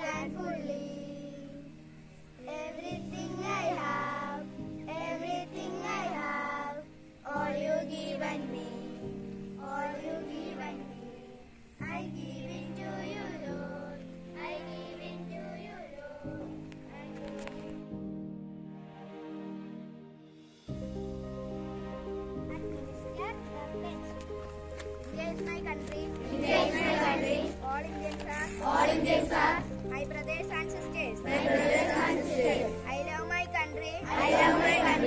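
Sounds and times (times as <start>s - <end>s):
children singing in unison: 0.0s - 1.8s, 2.4s - 17.8s, 26.1s - 29.8s, 31.1s - 33.0s, 33.9s - 35.0s
held accompaniment chords: 0.0s - 35.0s.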